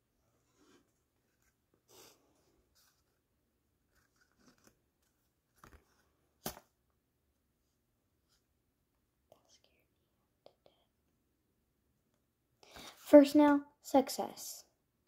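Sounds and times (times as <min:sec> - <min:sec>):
paper rustling: 0:03.9 - 0:06.7.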